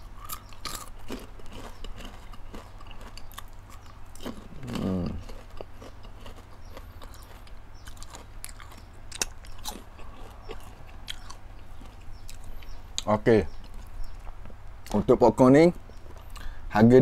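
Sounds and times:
popcorn chewing crunches: 0.0 - 15.0, 15.8 - 16.6
person humming: 4.4 - 5.2.

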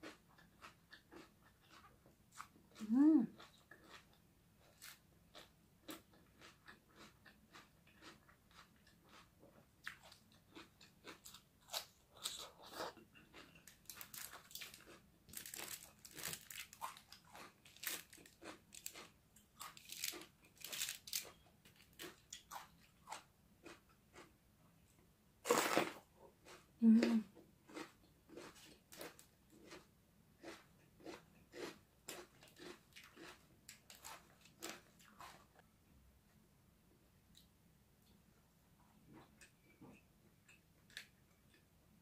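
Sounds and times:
crunching raw vegetables: 0.0 - 24.3.

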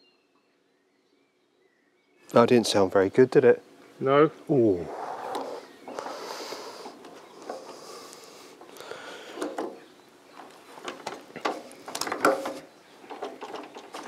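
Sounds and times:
clicks and knocks of hands working: 10.4 - 14.0.

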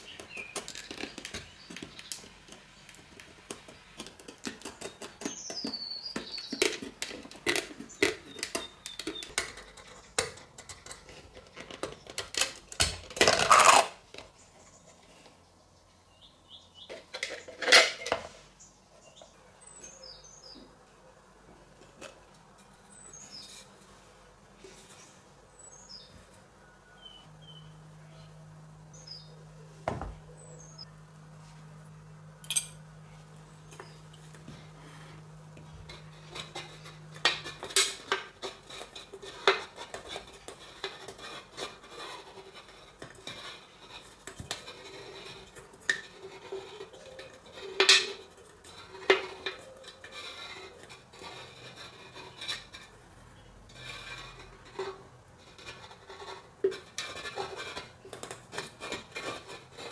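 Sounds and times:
blade scraping metal can: 53.7 - 59.9.

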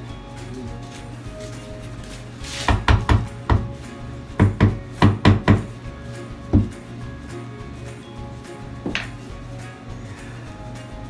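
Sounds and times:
tiles being knocked: 2.6 - 3.8, 4.4 - 5.7.

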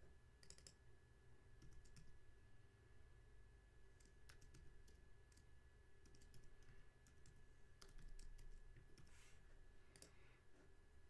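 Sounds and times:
keyboard typing: 0.4 - 0.8, 1.6 - 2.2, 4.0 - 9.2, 9.9 - 10.2.

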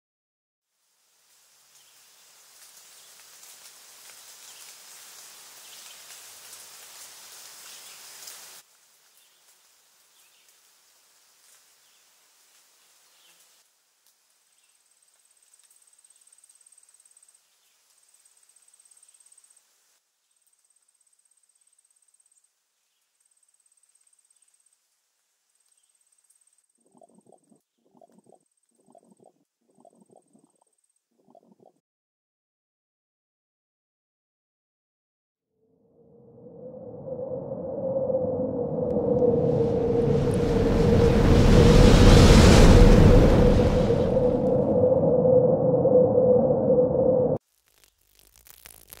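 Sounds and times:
steady rushing hiss: 0.9 - 20.0, 39.3 - 45.1
high-pitched insect trill: 47.6 - 49.0.

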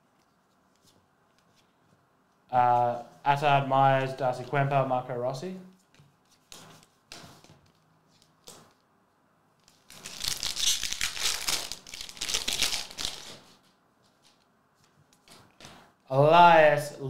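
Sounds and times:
foil wrapper tearing and crinkling: 9.8 - 13.4.

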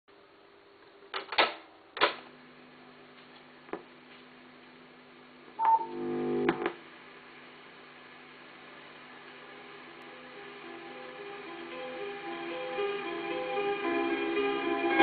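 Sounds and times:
noise burst with tone and click: 2.0 - 15.0
tape motor humming: 5.6 - 6.8.

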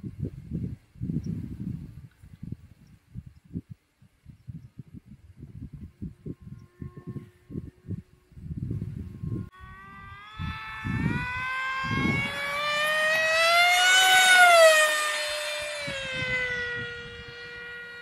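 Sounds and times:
wind rumble on microphone: 0.0 - 18.0
electric motor and propeller whining: 4.5 - 18.0.

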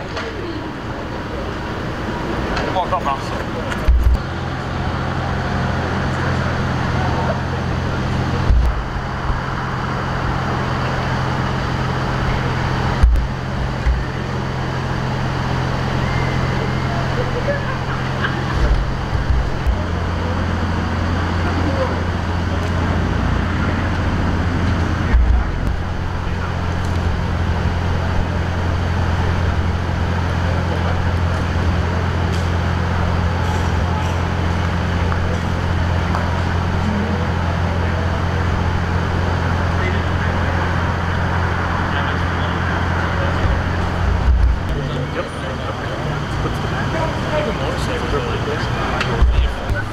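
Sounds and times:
street traffic: 0.0 - 49.9
vehicle engine idling: 0.0 - 49.9
low thumps: 8.4 - 9.6, 12.9 - 14.1.

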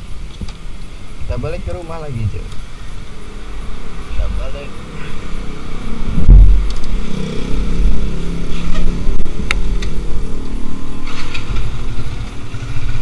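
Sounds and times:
motorcycle engine running: 2.6 - 13.0.

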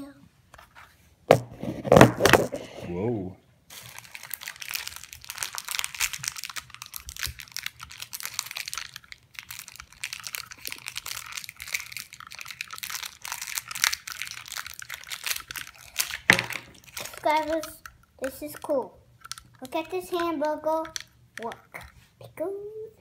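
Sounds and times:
plastic wrapper crinkling: 3.7 - 22.0.

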